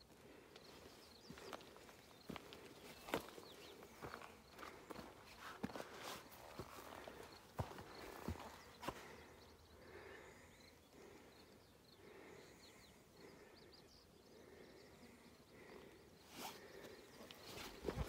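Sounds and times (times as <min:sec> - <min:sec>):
faint bird chirps: 0:00.0 - 0:18.0
footsteps on rocky ground: 0:00.6 - 0:09.3, 0:17.3 - 0:18.0.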